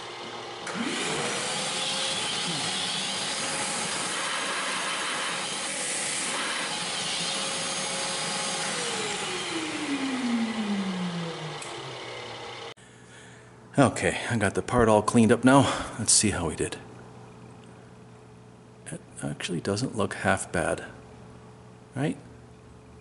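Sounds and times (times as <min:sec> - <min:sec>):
milling machine spindle humming: 0:00.0 - 0:12.8.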